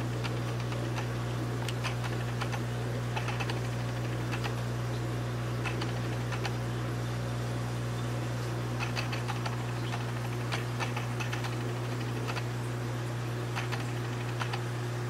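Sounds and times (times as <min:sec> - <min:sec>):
aquarium pumps humming: 0:00.0 - 0:15.0
light clicks and ticks: 0:00.1 - 0:04.7, 0:05.6 - 0:06.6, 0:08.8 - 0:12.5, 0:13.5 - 0:14.7.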